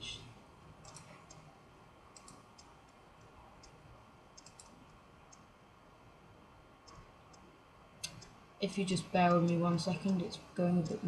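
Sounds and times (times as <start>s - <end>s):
computer mouse clicks: 0.8s - 1.5s, 2.1s - 3.8s, 4.4s - 5.5s, 6.8s - 7.4s, 9.2s - 11.0s.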